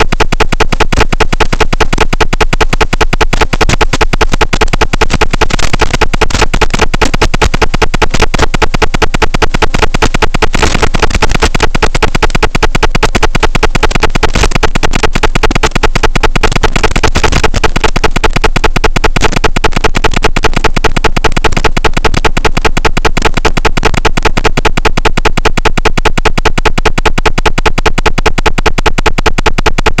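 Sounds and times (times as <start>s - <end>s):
pulsing electronic buzz: 0.0s - 30.0s.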